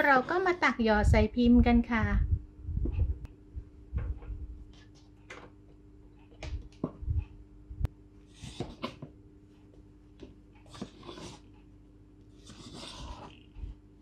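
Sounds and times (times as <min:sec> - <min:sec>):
faint steady hum: 0:00.0 - 0:14.0
spatula scraping batter in bowl: 0:08.3 - 0:09.0, 0:10.7 - 0:11.5, 0:12.3 - 0:13.7.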